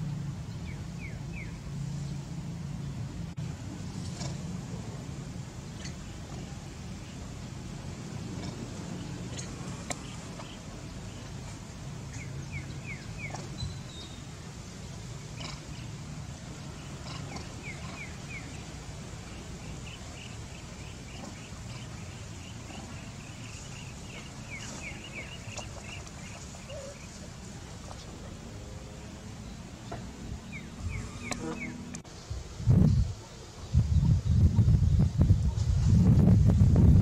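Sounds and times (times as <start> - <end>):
bird chirping: 0.0 - 2.2, 8.4 - 14.4, 16.6 - 27.2, 29.4 - 34.4.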